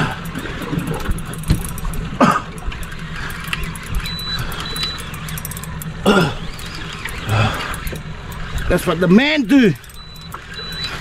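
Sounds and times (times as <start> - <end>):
boat engine idling: 0.0 - 11.0
faint high beeps: 3.4 - 5.8, 9.8 - 11.0.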